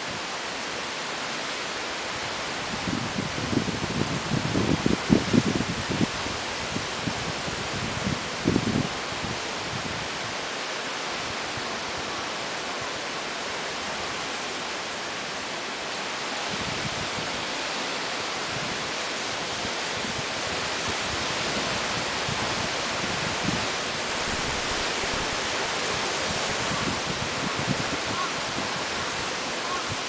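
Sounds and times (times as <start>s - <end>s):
heavy rain hiss: 0.0s - 30.0s
wind gusts rumbling: 2.2s - 10.4s, 16.3s - 30.0s.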